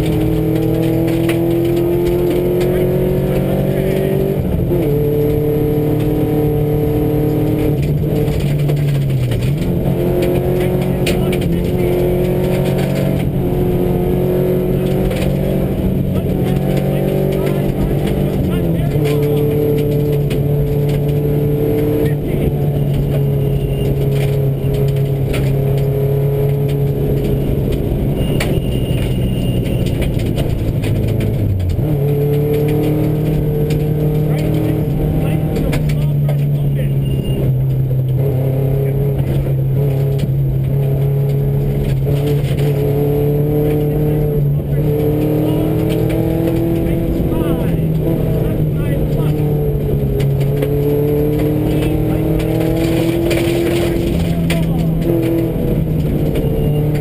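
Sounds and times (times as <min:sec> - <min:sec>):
rally car engine at steady revs: 0:00.0 - 0:57.0
tyres on gravel: 0:44.9 - 0:57.0.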